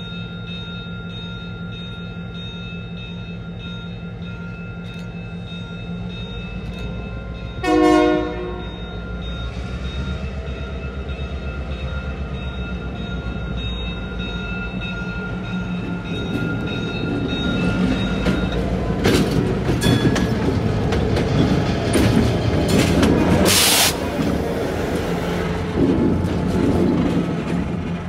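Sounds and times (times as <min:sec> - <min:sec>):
diesel locomotive engine running: 0:00.0 - 0:28.0
train wheel knocks and clacks: 0:15.8 - 0:28.0.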